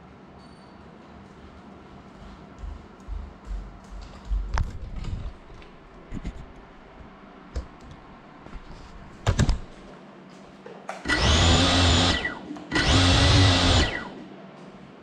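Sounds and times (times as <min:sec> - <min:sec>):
drone motors whining: 0:11.1 - 0:14.2.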